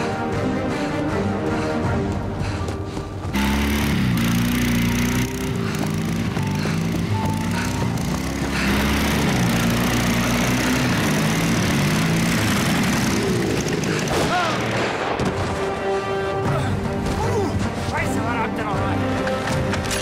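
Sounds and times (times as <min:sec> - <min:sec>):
film music: 0:00.0 - 0:20.0
motorcycle engine running: 0:03.2 - 0:14.2.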